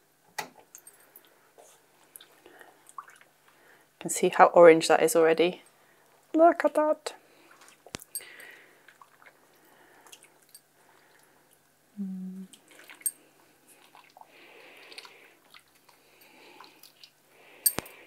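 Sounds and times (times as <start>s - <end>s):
wet fabric sloshing in liquid: 13.7s - 16.0s.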